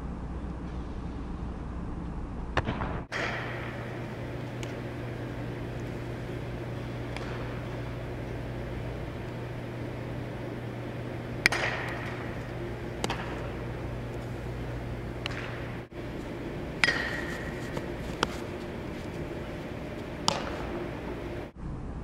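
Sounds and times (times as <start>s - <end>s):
indoor hall hum: 0.0s - 22.0s
metal bat pinging: 2.6s - 21.5s.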